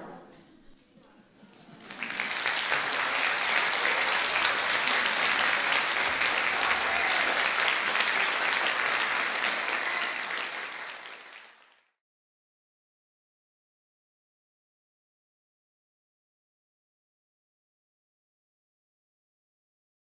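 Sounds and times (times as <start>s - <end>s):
audience applauding: 1.5s - 12.0s.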